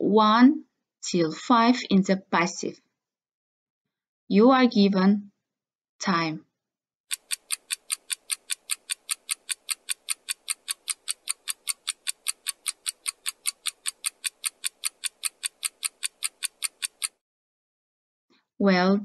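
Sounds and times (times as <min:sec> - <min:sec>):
fast clock ticks: 0:07.1 - 0:17.2.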